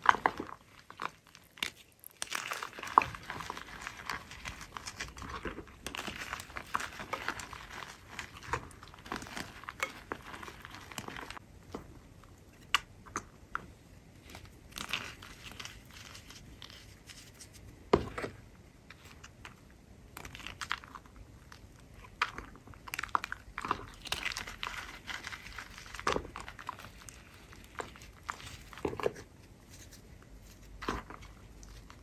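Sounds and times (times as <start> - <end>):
hands crumbling chalk: 0.0 - 11.4.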